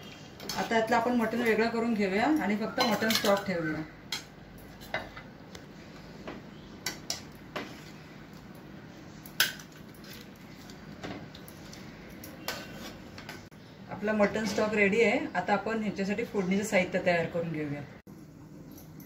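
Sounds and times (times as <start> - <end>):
metal ladle clinking and scraping: 11.6 - 13.0.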